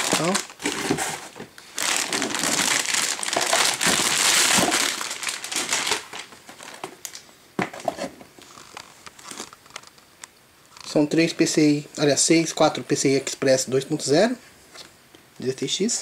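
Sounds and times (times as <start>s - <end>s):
plastic bag crinkling: 0.0s - 7.2s, 8.4s - 10.0s.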